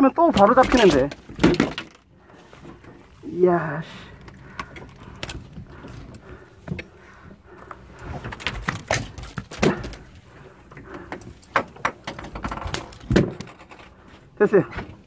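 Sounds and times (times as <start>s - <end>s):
knocks and thumps on boat deck: 10.8s - 13.8s.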